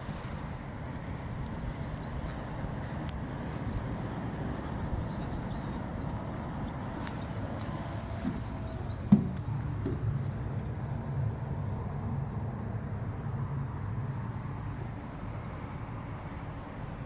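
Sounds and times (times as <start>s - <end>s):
tram low rumble: 0.0s - 17.0s
knocks: 9.1s - 10.0s.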